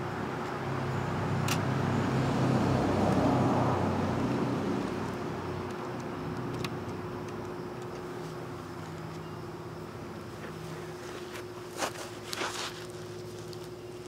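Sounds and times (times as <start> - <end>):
road vehicle passing: 0.0 - 7.2
faint steady whine: 3.7 - 14.0.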